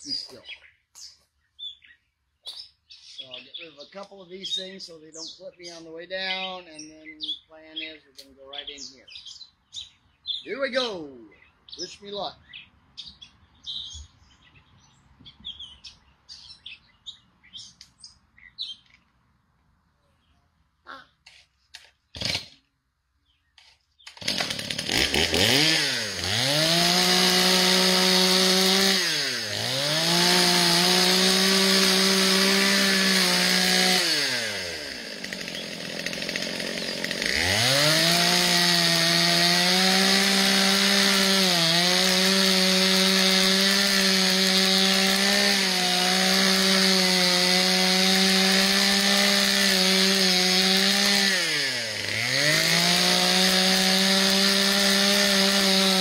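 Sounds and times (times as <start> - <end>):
chainsaw cutting tree limb: 21.7 - 22.6, 24.0 - 56.0.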